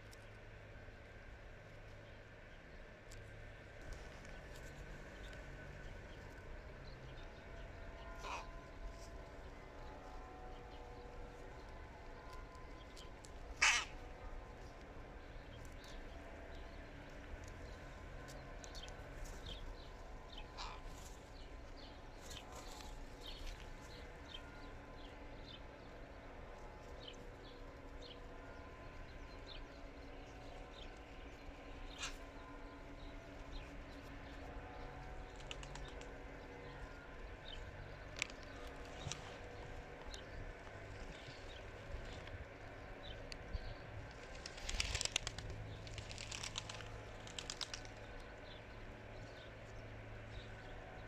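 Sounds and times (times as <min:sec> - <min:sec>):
low background hum: 0:00.0 - 0:51.0
crows cawing: 0:08.0 - 0:09.0, 0:13.5 - 0:14.2, 0:20.4 - 0:21.2, 0:32.0 - 0:32.2.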